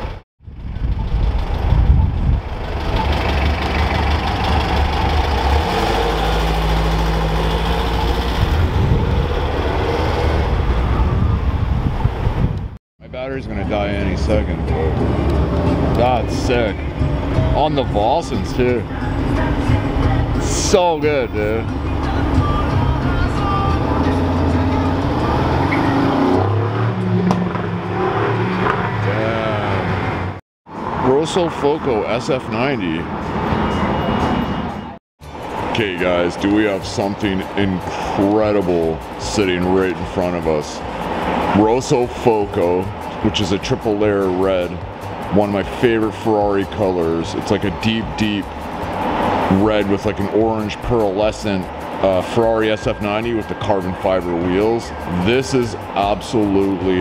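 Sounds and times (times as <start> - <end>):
car engine rumbling: 0.0 - 34.6, 35.2 - 57.0
city traffic noise: 0.0 - 57.0.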